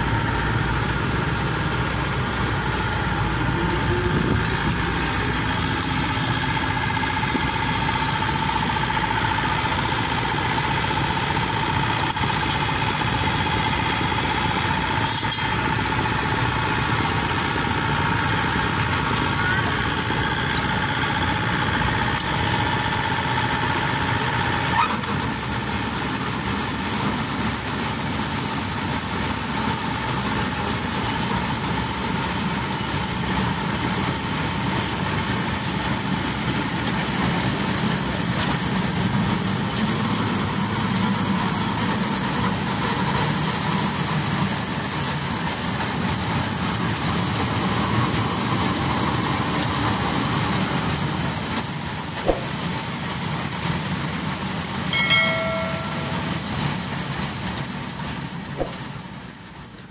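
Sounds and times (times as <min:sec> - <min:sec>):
harvester engine running: 0:00.0 - 0:59.9
steady whine: 0:54.9 - 0:57.0.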